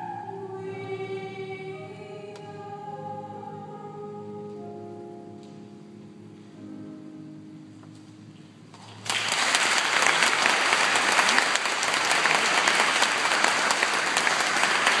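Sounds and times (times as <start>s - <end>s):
audience clapping: 8.7s - 15.0s.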